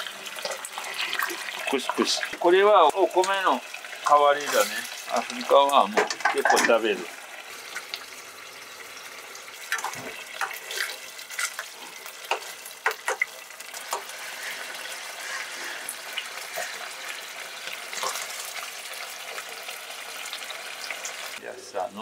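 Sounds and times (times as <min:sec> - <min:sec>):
stew bubbling and sizzling: 0:00.0 - 0:22.0
metal ladle scraping a pan: 0:13.9 - 0:18.5.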